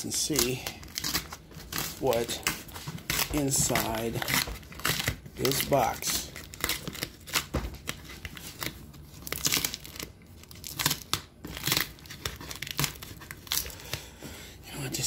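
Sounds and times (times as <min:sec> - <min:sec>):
packing tape peeling: 0:00.0 - 0:14.0.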